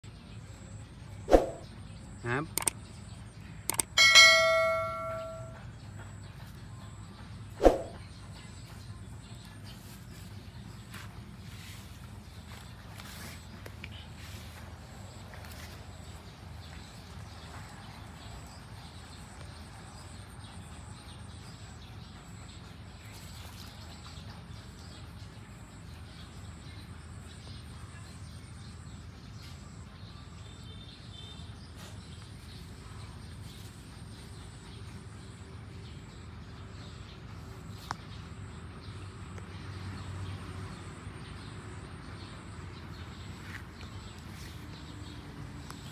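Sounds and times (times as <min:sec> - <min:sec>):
sharp click: 0:02.5 - 0:02.8, 0:03.7 - 0:04.0.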